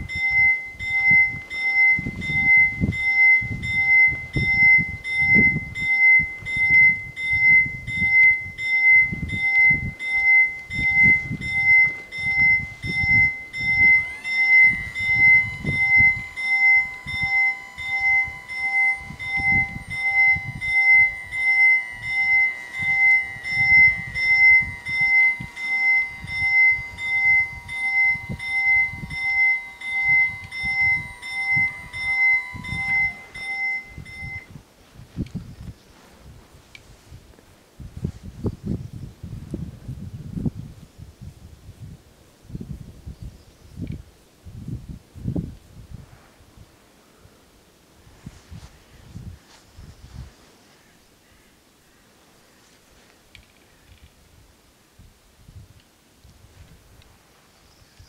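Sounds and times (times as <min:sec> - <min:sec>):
barrier motor whine: 0:00.0 - 0:34.6
level crossing warning bells: 0:00.0 - 0:34.6.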